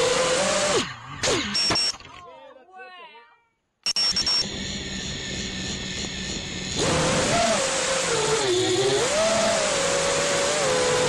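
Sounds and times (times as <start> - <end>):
drone motors buzzing: 3.9 - 11.0.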